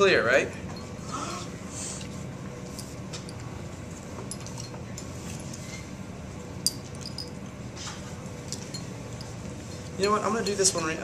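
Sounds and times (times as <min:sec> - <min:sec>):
room hum: 0:00.0 - 0:11.0
glass dropper clinking on glass: 0:06.6 - 0:07.4, 0:08.5 - 0:09.5.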